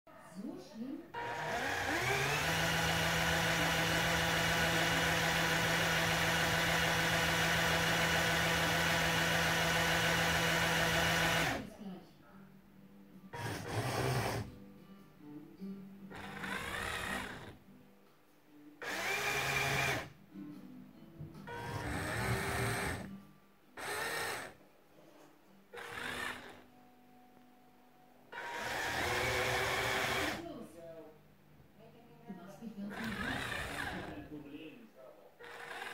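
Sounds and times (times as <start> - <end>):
toy motor whining: 1.2 - 11.6, 13.4 - 14.5, 16.1 - 17.6, 18.8 - 20.1, 21.5 - 23.1, 23.8 - 24.6, 25.7 - 26.6, 28.4 - 30.4, 32.9 - 34.2, 35.4 - 35.9.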